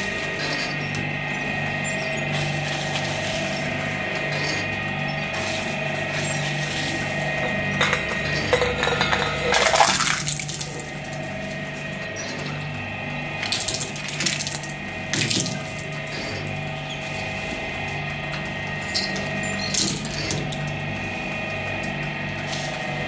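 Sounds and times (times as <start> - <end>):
meat grinder humming: 0.0 - 23.0
cookies crunching in grinder: 2.1 - 11.9, 12.5 - 16.5.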